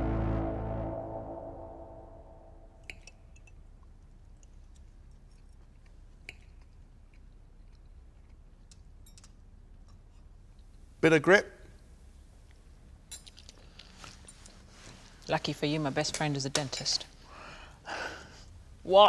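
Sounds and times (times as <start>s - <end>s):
background music: 0.0s - 2.9s
person chewing: 3.8s - 9.0s
cutlery clicks: 8.7s - 10.0s.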